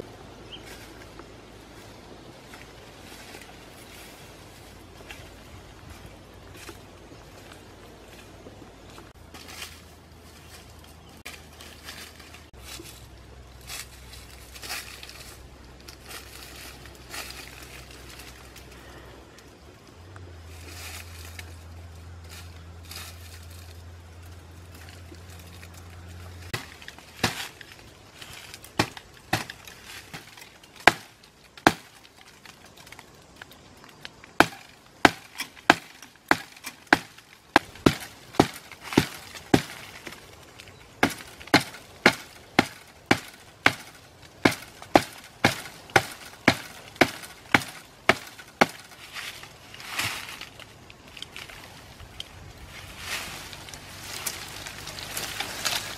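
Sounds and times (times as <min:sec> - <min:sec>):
low steady hum: 0:00.0 - 0:55.9
blade chopping bamboo: 0:26.4 - 0:32.6, 0:34.3 - 0:40.3, 0:41.0 - 0:49.0.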